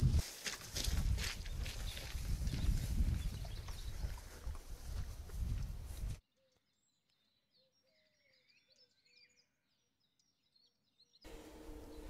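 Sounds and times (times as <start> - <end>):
wind rumbling on microphone: 0.0 - 6.2
songbirds chirping and trilling: 1.2 - 12.0.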